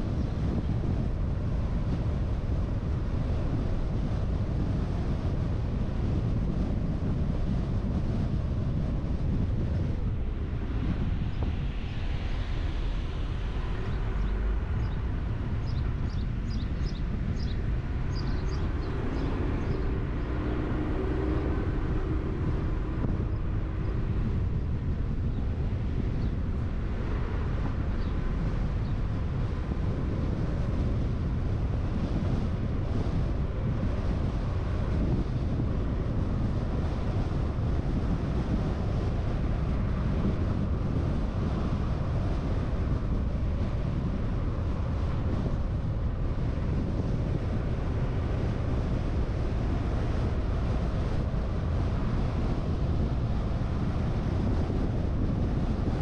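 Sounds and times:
car road and wind rumble: 0.0s - 56.0s
wind buffeting microphone: 0.0s - 56.0s.

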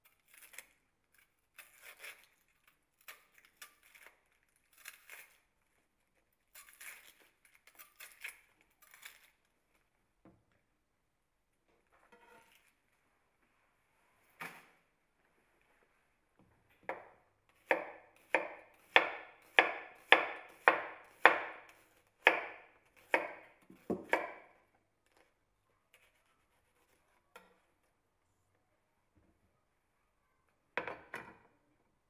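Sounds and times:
knife slicing onion on board: 17.6s - 24.6s.

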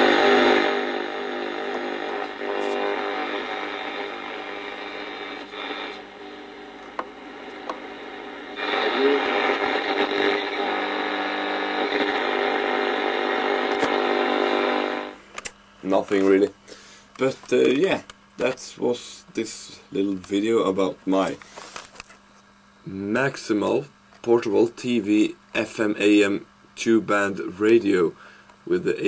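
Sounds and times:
radio whistling tones: 0.0s - 15.1s
radio hiss and interference: 0.0s - 15.2s.

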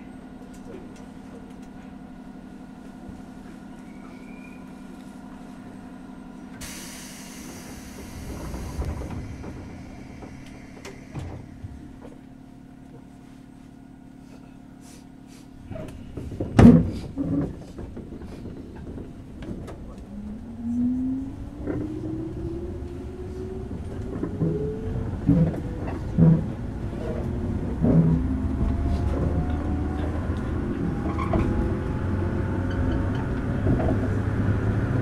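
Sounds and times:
train equipment hum: 0.0s - 35.0s
air hiss: 6.6s - 11.6s
traction motor whine: 6.6s - 12.4s.

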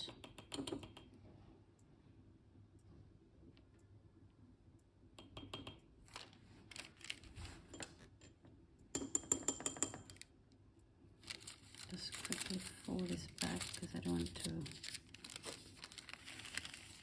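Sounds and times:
paper rustling: 6.1s - 7.7s, 11.2s - 17.0s.

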